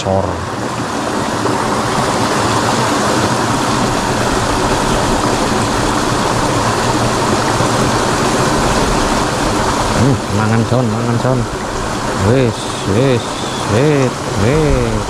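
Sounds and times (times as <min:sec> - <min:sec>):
ditch water running: 0:00.0 - 0:15.0.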